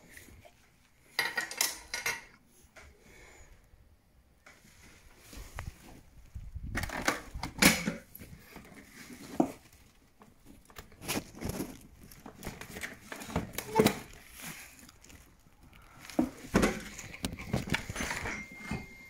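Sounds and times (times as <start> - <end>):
clicks and knocks of metal parts: 1.1 - 2.4
plastic sheet rustling: 4.6 - 18.4.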